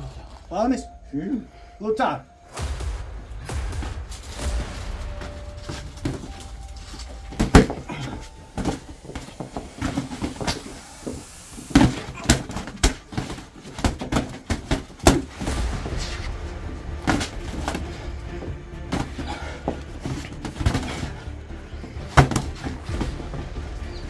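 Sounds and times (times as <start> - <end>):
thuds and slaps of blows: 2.5 - 10.7, 11.7 - 21.2, 21.8 - 23.7
scuffling: 2.5 - 16.4.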